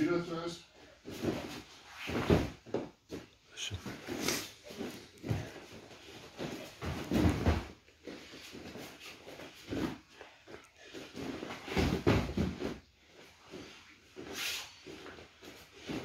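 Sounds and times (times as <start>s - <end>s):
body thrown onto mat: 6.4s - 7.8s, 11.6s - 12.8s.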